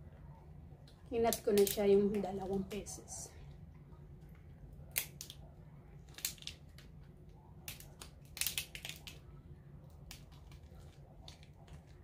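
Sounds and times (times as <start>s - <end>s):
lobster shell cracking: 1.3s - 1.8s, 4.9s - 5.4s, 6.0s - 9.2s.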